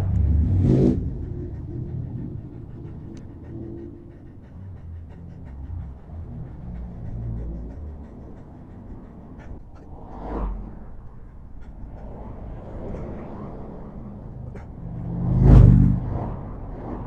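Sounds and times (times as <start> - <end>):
wind buffeting microphone: 0.0 - 17.0
light ticks: 0.1 - 0.3, 3.0 - 3.3.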